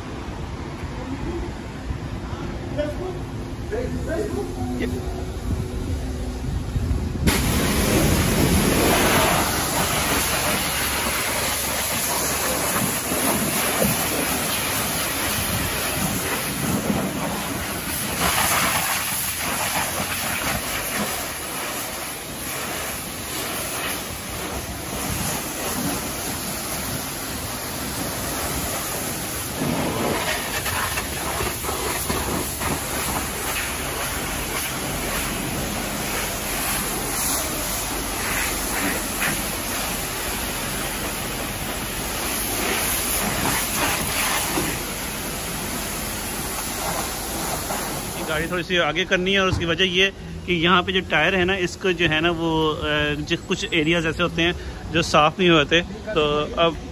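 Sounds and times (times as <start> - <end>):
pressure washer spraying water: 7.2 - 48.6.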